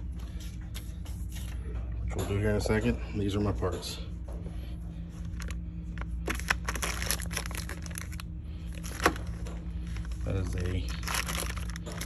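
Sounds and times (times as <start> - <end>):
plastic bags crinkling: 5.2 - 12.0.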